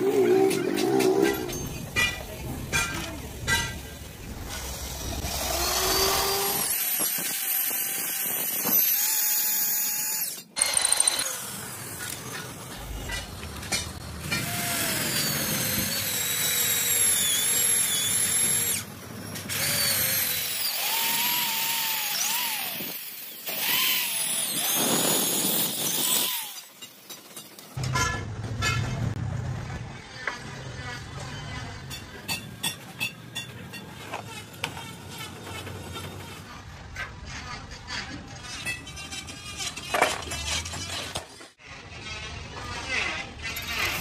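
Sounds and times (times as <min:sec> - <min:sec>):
electric drill boring through steel: 0:04.4 - 0:12.8, 0:14.2 - 0:27.0.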